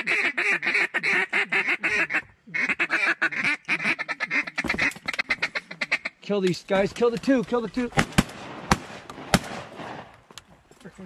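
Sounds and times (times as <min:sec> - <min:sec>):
duck call quacking: 0:00.0 - 0:06.2.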